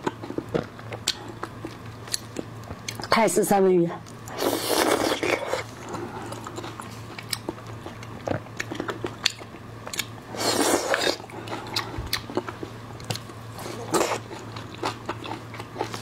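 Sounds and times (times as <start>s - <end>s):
soft wet chewing clicks: 0.0s - 3.2s, 6.3s - 10.2s, 11.5s - 13.4s.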